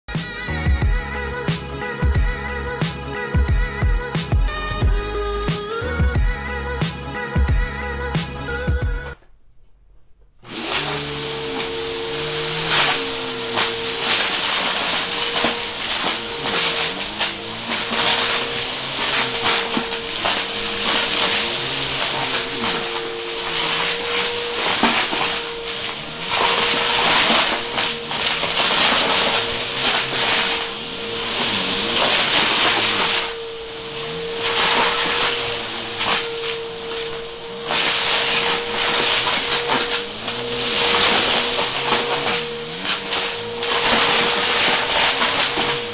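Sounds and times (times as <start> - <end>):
vacuum cleaner motor whine: 10.4 - 45.9.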